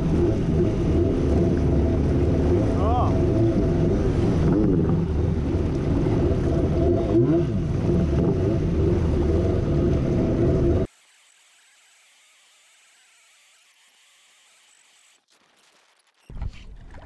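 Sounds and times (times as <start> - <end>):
jet ski engine running hard: 0.0 - 10.9
rushing water: 0.0 - 10.9.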